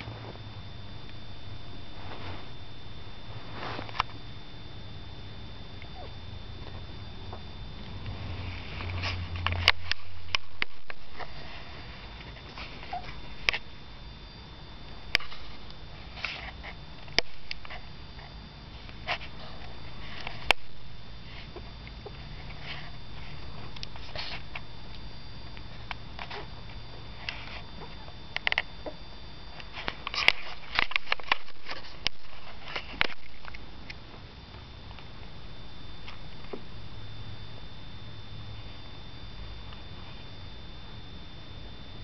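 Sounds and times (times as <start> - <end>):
puppy rustling in a fleece blanket: 1.8 - 4.2.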